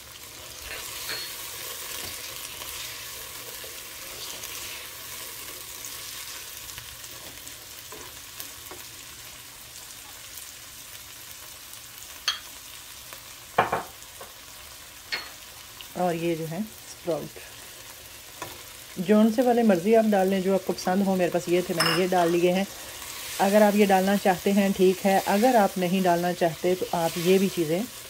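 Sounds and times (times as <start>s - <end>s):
food sizzling in a wok: 0.0s - 28.0s
spatula scraping a pan: 0.6s - 6.4s.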